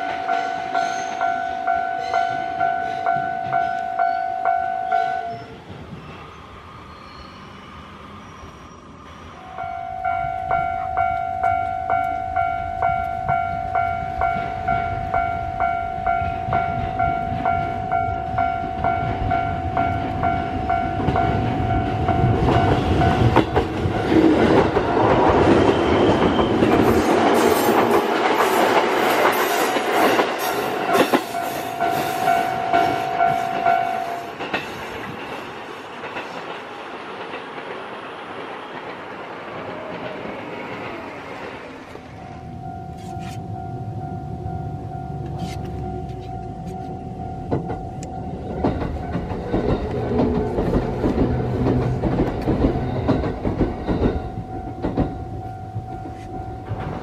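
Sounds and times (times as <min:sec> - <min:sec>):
level crossing alarm ringing: 0:00.0 - 0:05.4, 0:09.4 - 0:24.2, 0:29.4 - 0:34.6, 0:42.0 - 0:51.5, 0:53.9 - 0:57.0
train wheels clattering: 0:16.1 - 0:42.1, 0:45.2 - 0:57.0.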